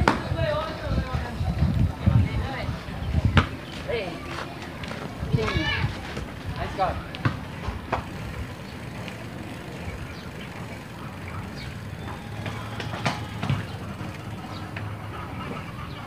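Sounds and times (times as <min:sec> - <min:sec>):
bicycle road and wind rumble: 0:00.0 - 0:16.0
bicycle clicks and rattles: 0:04.3 - 0:15.2.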